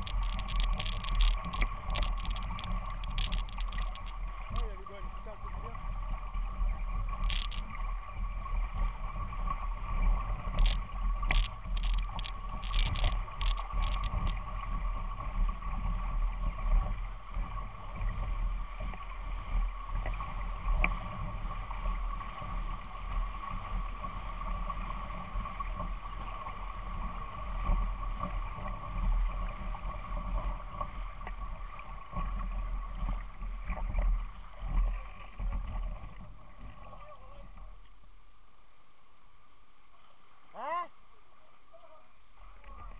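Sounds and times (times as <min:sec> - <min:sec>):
microphone rumble: 0:00.0 - 0:09.4
steady high hum: 0:00.0 - 0:19.8
wading through river water: 0:00.0 - 0:37.8.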